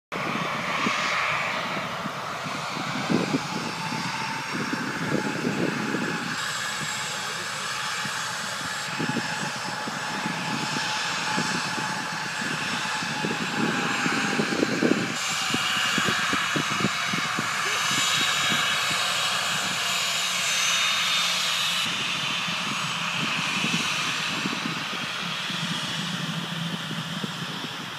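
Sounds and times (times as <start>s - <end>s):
jet engines hissing and whining: 0.1s - 27.9s.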